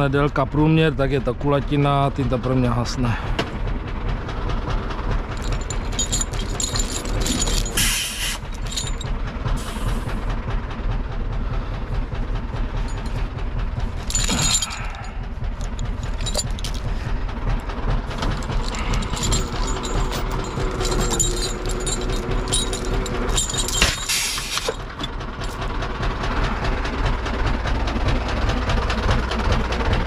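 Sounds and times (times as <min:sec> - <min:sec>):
tractor engine running: 0:00.0 - 0:30.0
metallic clinks and rattles: 0:05.2 - 0:09.2, 0:12.7 - 0:25.8.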